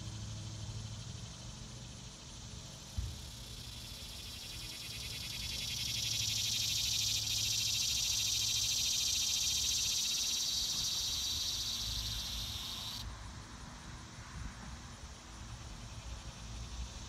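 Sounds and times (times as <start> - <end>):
cicada buzzing: 0.1 - 13.0.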